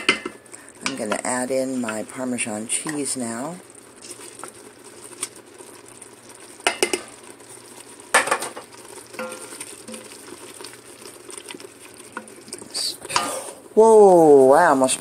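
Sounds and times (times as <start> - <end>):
spoon knocking against pot: 0.0 - 1.2, 6.6 - 7.1, 9.2 - 9.5.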